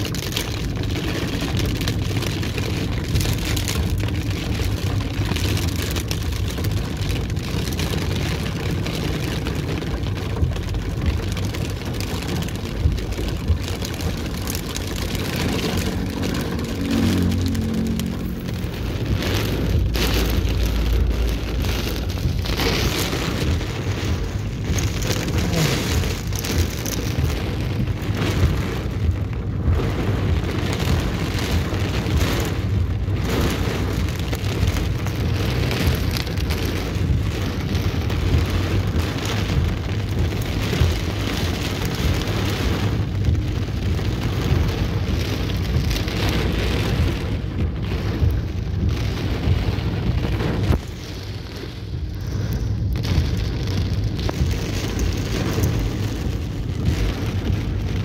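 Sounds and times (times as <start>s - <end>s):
heavy rain on car roof: 0.0s - 58.0s.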